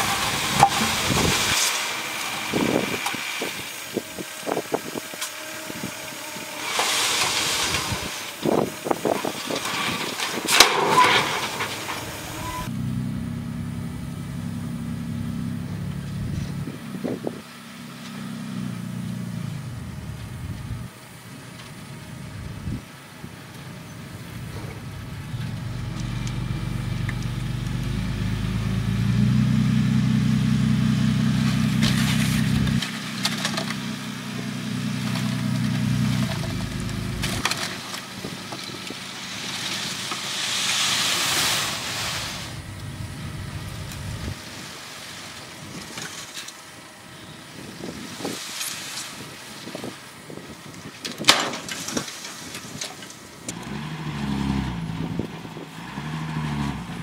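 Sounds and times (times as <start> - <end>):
diesel truck engine: 0.0 - 5.0, 6.6 - 57.0
dirt pouring out: 0.0 - 12.7, 30.9 - 34.0, 34.7 - 46.7.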